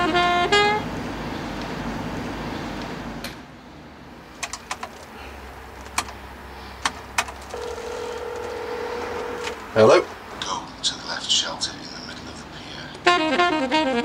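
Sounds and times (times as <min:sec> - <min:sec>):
steady phone tone: 0:07.5 - 0:10.0.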